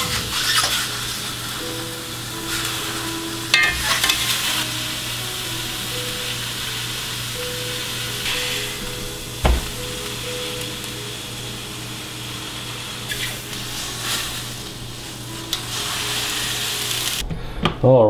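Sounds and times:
meat sizzling in a skillet: 0:00.0 - 0:17.2
metal tongs clicking on pan: 0:03.5 - 0:04.3
roast thumping in pan: 0:03.5 - 0:04.4, 0:09.4 - 0:10.2.

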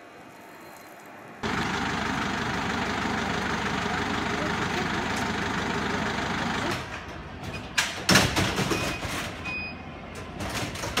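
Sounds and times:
vehicle engine idling: 0:01.4 - 0:07.4.

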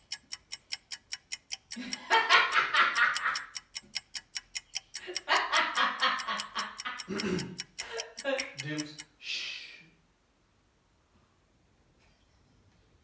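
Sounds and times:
clock ticking: 0:00.0 - 0:09.2
person speaking: 0:07.1 - 0:09.8.

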